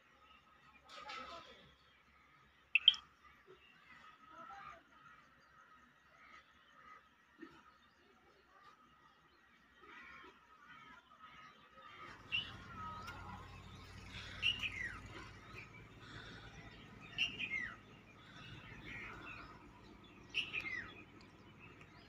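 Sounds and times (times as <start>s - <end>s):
faint background bird chirping: 0.0s - 22.0s
sharp bird chirp falling in pitch: 2.8s - 3.0s.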